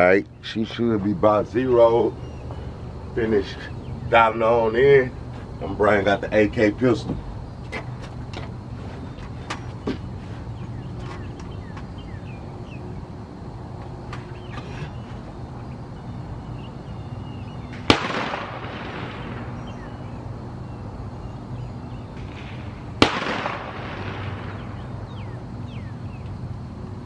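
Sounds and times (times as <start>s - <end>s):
rifle shots with echo: 17.8s - 19.6s, 22.3s - 24.7s.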